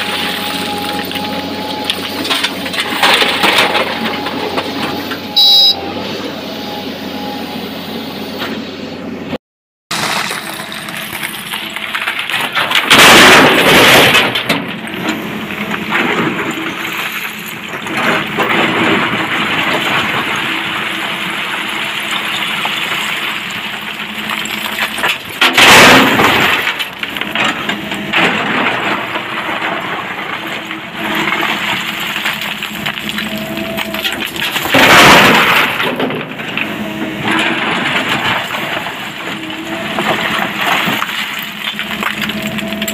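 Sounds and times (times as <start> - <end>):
diesel engine under load: 0.0 - 42.9
rock crashing and clattering: 9.9 - 42.9.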